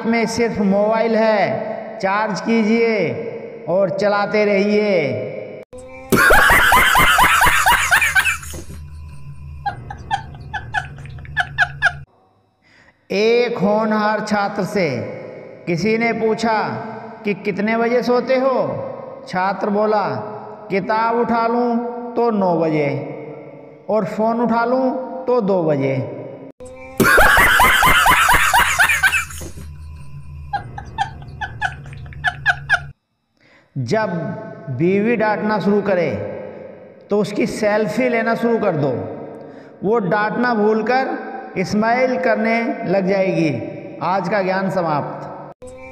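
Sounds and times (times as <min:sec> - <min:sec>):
steady low hum: 0:05.9 - 0:12.9, 0:26.7 - 0:34.8
man laughing loudly: 0:06.1 - 0:12.1, 0:27.0 - 0:29.7, 0:30.5 - 0:32.9
rhythmic snickering: 0:06.1 - 0:12.1, 0:27.0 - 0:29.7, 0:30.5 - 0:32.9.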